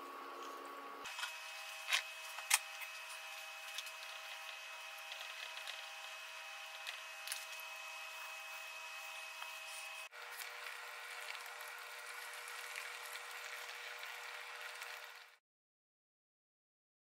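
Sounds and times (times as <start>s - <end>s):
food sizzling in a pan: 9.0s - 15.4s.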